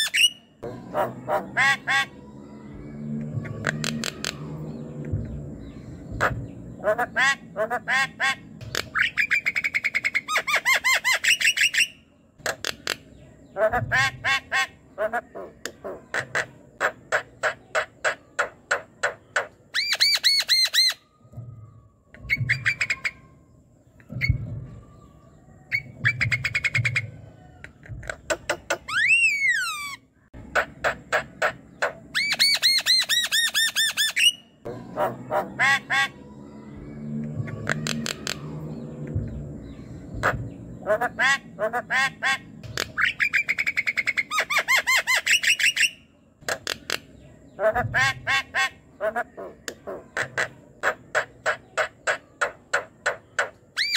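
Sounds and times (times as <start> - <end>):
myna chattering song: 0.0 - 10.4, 12.4 - 19.6, 34.2 - 45.6, 46.5 - 53.9
harsh squawking calls: 0.0 - 53.9.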